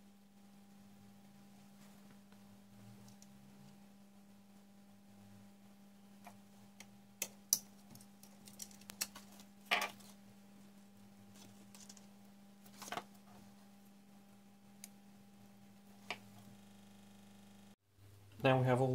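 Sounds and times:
low steady hum: 0:00.0 - 0:18.9
clicks and taps of wires: 0:06.2 - 0:09.5.

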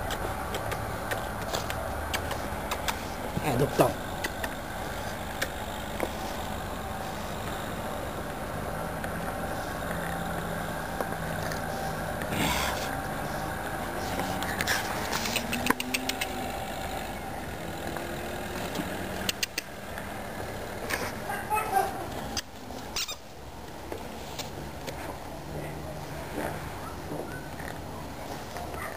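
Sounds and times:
motor vehicle engine idling: 0:00.0 - 0:22.9.

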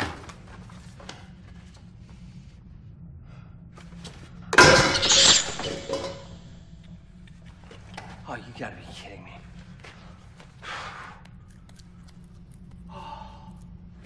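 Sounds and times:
glass breaking crash: 0:04.6 - 0:06.4.

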